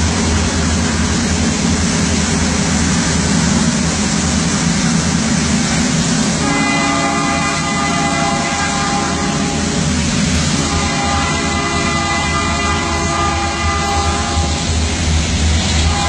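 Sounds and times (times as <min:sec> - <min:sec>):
train rolling rumble: 0:00.0 - 0:16.0
train horn chord: 0:06.4 - 0:14.8.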